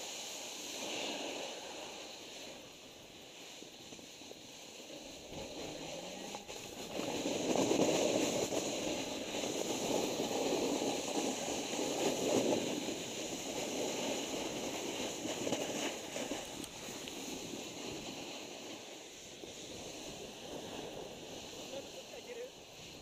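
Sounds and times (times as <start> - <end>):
snowboards carving over packed snow: 0.0 - 23.0.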